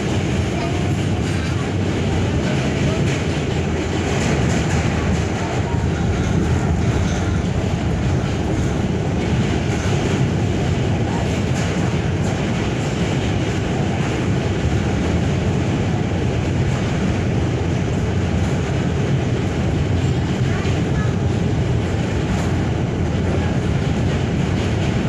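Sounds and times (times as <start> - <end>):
subway wheels rumbling on rail: 0.0 - 25.0.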